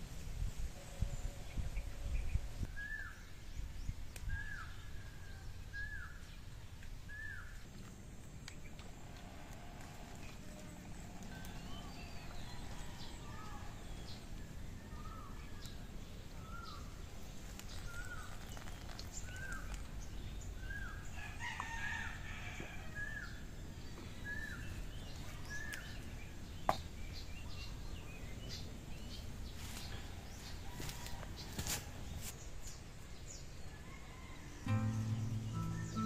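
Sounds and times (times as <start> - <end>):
rooster crowing: 11.4 - 13.8, 21.1 - 23.2, 33.7 - 34.8.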